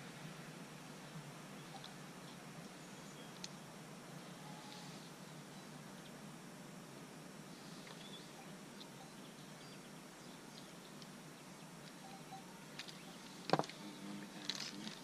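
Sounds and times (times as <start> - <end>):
faint bird chirps: 1.5 - 3.6, 4.2 - 6.2, 7.5 - 14.8.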